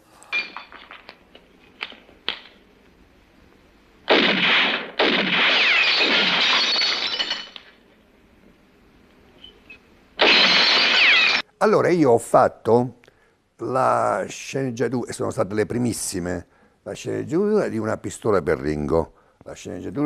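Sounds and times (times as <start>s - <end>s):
glass bottles clinking: 0.3s - 1.2s, 5.9s - 7.8s
glass shattering: 0.3s - 1.2s, 4.1s - 7.8s, 10.2s - 11.5s.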